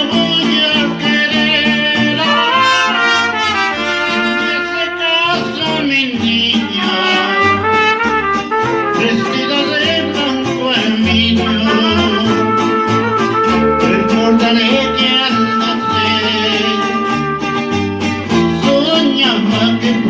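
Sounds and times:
man singing into microphone: 0.0 - 17.4, 18.3 - 20.0
bass guitar line: 0.0 - 20.0
guitars: 0.0 - 20.0
trumpets: 2.2 - 5.8, 6.8 - 10.2, 11.4 - 18.0.

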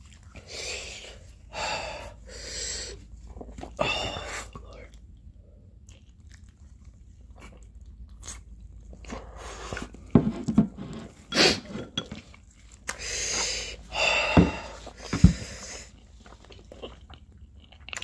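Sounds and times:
chewing and slurping noodles: 2.1 - 10.1, 10.9 - 18.0.

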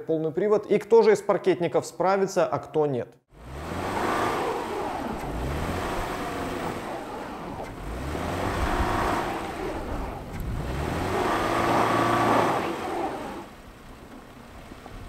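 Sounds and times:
car engine revving: 3.3 - 14.1.

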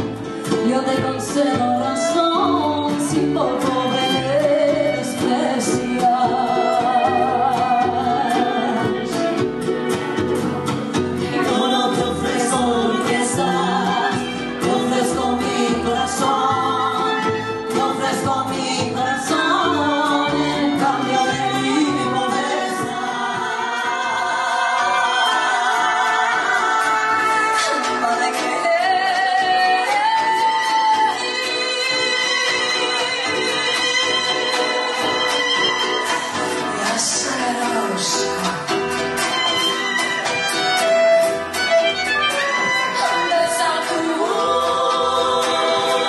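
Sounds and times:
plucked double bass: 0.0 - 46.0
strummed guitars: 0.0 - 46.0
violin: 0.0 - 46.0
women singing together: 0.6 - 9.3, 11.2 - 33.2, 42.9 - 46.0
trumpet: 19.0 - 44.5.

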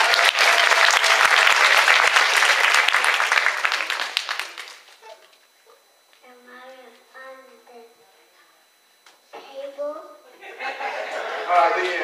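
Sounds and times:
crowd applauding: 0.0 - 5.1, 11.1 - 12.0.

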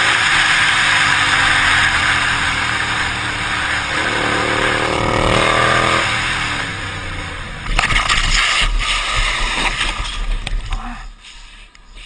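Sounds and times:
motorcycle engine running: 0.0 - 7.7.

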